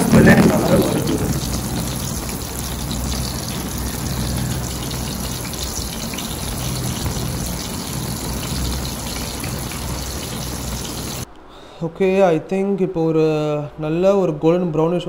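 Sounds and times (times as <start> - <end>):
food deep-frying in oil: 0.0 - 11.2
low hum: 0.0 - 11.2.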